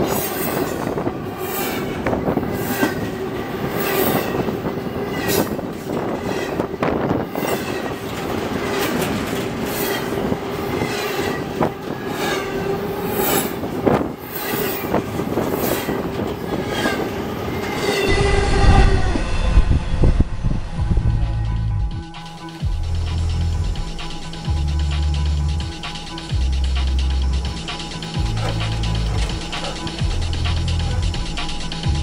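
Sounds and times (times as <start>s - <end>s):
train wheels clacking over rail joints: 0.0s - 18.1s, 25.7s - 32.0s
train wheel squeal: 0.0s - 20.8s.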